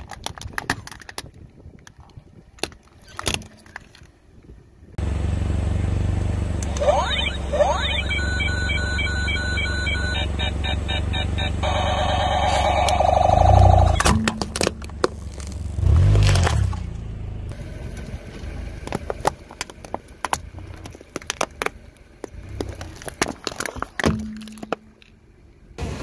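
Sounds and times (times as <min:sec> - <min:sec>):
car engine and tyre rumble: 0:00.0 - 0:26.0
plastic cracking and snapping: 0:18.9 - 0:21.8.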